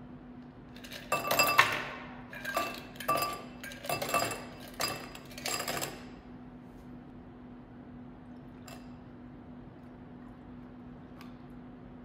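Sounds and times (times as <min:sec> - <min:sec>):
ice cubes clinking in glass: 0:00.8 - 0:06.1.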